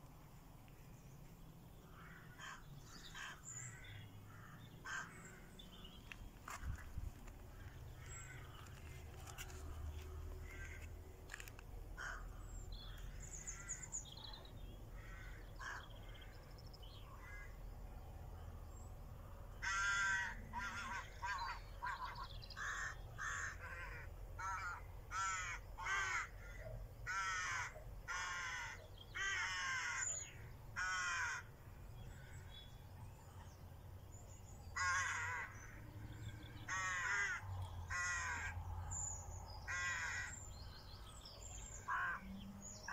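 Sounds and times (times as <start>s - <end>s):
low outdoor rumble: 0.0s - 27.0s
faint bird calls: 0.7s - 17.6s, 34.2s - 42.9s
crow cawing: 1.8s - 5.6s, 7.5s - 13.9s, 15.0s - 15.9s, 19.6s - 31.5s, 34.8s - 35.8s, 36.6s - 38.6s, 39.7s - 40.4s, 41.7s - 42.3s.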